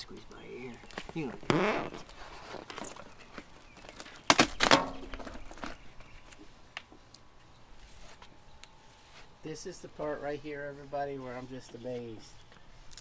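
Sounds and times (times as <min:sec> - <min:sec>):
vinyl film crinkling: 0:00.6 - 0:08.3
vinyl film taps and rustles: 0:00.8 - 0:07.3.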